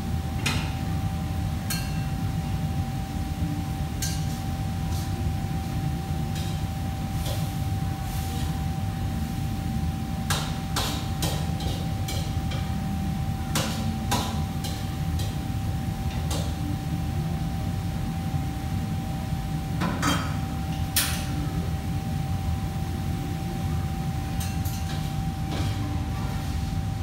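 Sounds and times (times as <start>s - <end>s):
faint steady whine: 0.0s - 10.2s.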